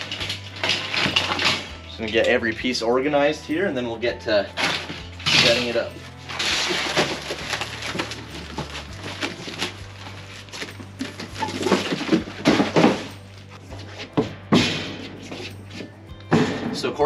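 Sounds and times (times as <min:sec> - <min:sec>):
knocks and clatters: 0:00.0 - 0:01.9, 0:10.5 - 0:13.3
cardboard box rustling and scraping: 0:04.8 - 0:14.4.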